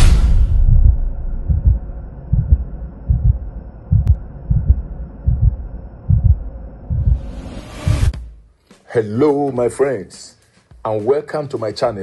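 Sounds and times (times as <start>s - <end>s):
deep bass heartbeat thumps: 0.0s - 8.4s
faint steady drone: 0.8s - 7.2s.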